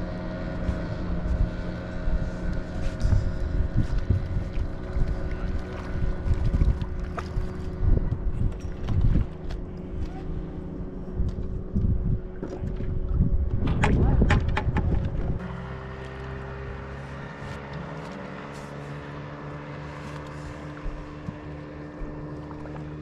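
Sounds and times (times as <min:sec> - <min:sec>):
wind buffeting microphone: 0:00.2 - 0:15.5.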